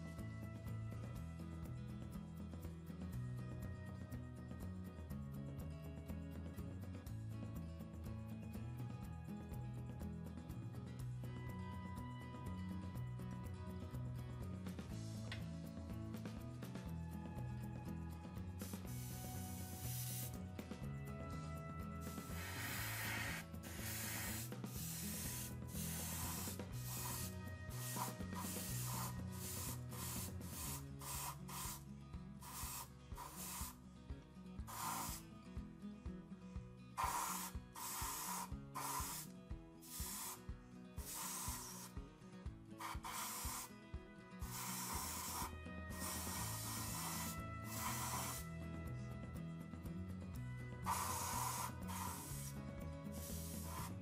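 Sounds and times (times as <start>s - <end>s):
background music: 0.0s - 54.0s
airbrush spraying bursts of hiss: 18.6s - 20.4s, 22.0s - 33.8s, 34.6s - 35.2s, 37.0s - 42.0s, 42.8s - 43.8s, 44.4s - 48.5s, 50.8s - 54.0s.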